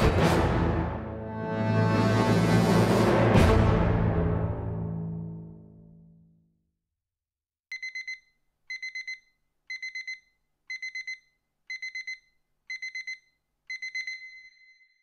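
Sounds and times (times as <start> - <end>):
alarm clock beeping: 7.7 - 15.0.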